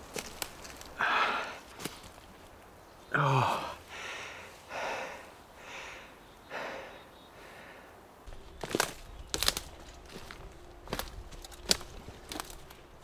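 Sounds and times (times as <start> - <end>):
man breathing heavily: 0.8 - 1.8, 3.1 - 8.2.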